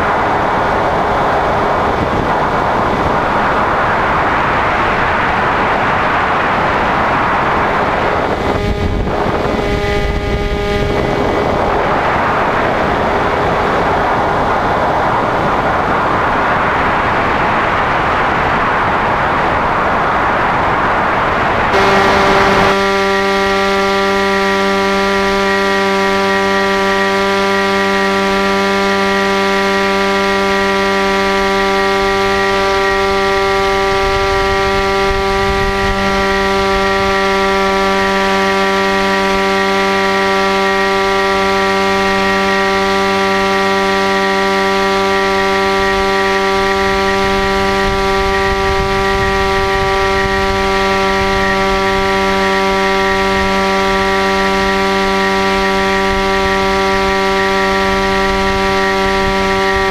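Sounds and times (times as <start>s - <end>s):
electric motor buzzing whine: 0.0s - 16.7s, 21.7s - 59.9s
wind rumble on microphone: 0.0s - 27.0s, 29.8s - 59.9s.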